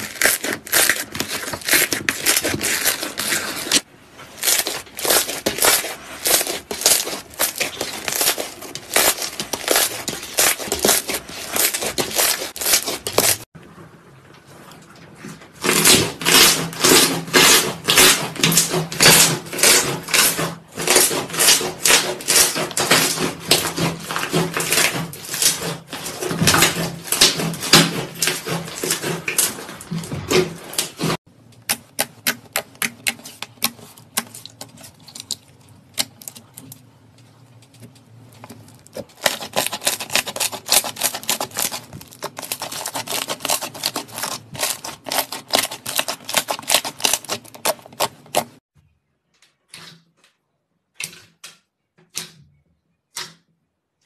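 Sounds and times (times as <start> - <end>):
slime crackling and popping: 0.0 - 13.4, 38.6 - 48.5.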